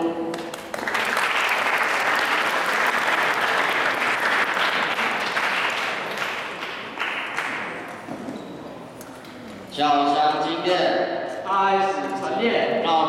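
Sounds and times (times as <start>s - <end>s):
audience applauding: 0.3s - 8.0s.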